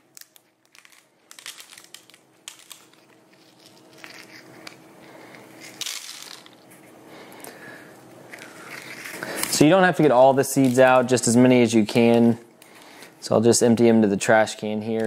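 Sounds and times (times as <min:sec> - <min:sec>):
dried chili peppers crackling: 0:00.0 - 0:06.6, 0:08.2 - 0:13.0.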